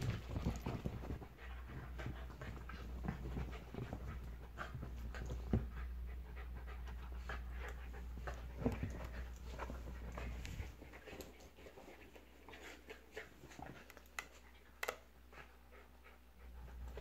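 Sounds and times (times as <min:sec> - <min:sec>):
dogs scuffling on cushions: 0:00.0 - 0:05.8
dogs panting: 0:00.0 - 0:17.0.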